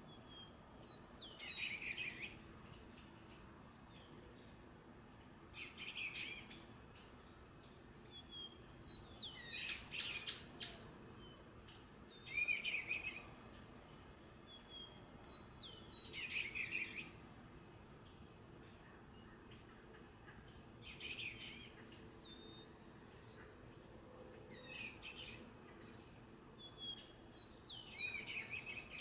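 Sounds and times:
bird singing warbled phrases: 0:00.0 - 0:03.0, 0:05.5 - 0:07.2, 0:08.0 - 0:17.2, 0:19.2 - 0:23.8, 0:24.4 - 0:26.0, 0:26.6 - 0:29.0
whistled bird notes: 0:00.1 - 0:02.4, 0:08.1 - 0:11.4, 0:12.1 - 0:13.4, 0:14.5 - 0:17.1, 0:26.6 - 0:29.0.

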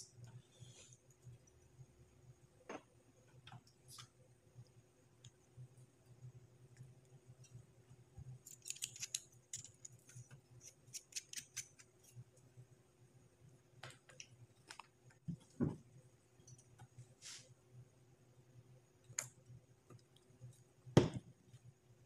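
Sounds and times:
small metallic clicks and scrapes: 0:08.3 - 0:12.4.

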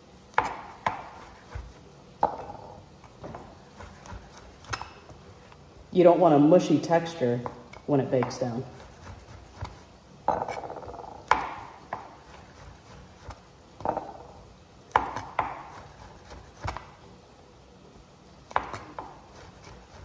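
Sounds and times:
knife slicing mushrooms: 0:03.0 - 0:05.3, 0:08.2 - 0:10.6, 0:11.2 - 0:13.9, 0:14.9 - 0:17.0, 0:18.4 - 0:20.0.

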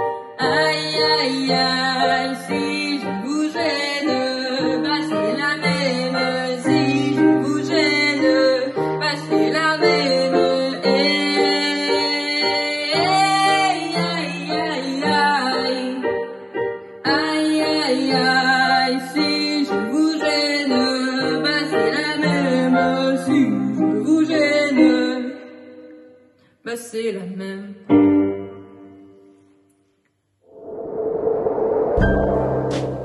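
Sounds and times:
woman singing: 0:00.4 - 0:16.4, 0:17.0 - 0:25.9, 0:26.7 - 0:28.0.

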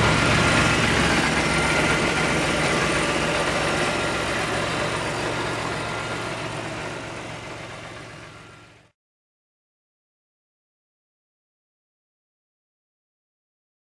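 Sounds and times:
car engine idling: 0:00.0 - 0:08.9.

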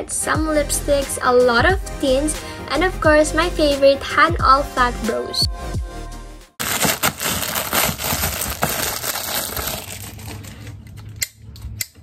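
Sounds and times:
plastic bag crinkling: 0:06.6 - 0:11.0.

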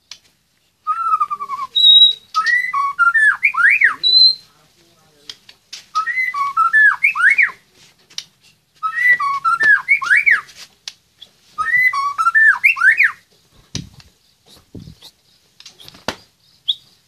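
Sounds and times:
songbird whistling phrases: 0:00.8 - 0:04.5, 0:05.9 - 0:07.6, 0:08.8 - 0:10.5, 0:11.2 - 0:13.3, 0:16.6 - 0:17.0.

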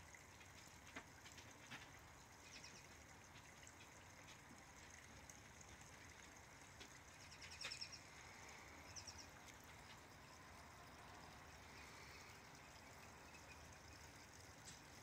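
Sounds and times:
small waterfall trickling: 0:00.0 - 0:15.0.

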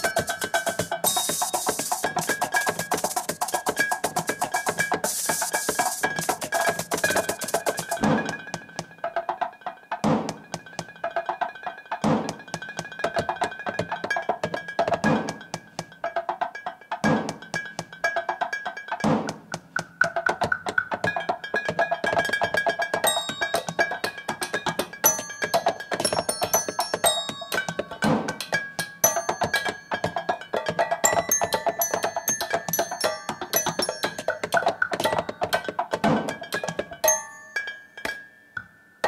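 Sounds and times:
high ringing tones: 0:00.0 - 0:09.1, 0:37.0 - 0:39.0
small percussion instruments: 0:00.0 - 0:39.0.

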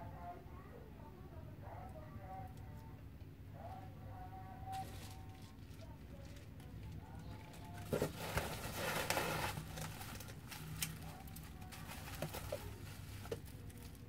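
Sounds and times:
bubble wrap crackly rustle: 0:04.7 - 0:14.0.

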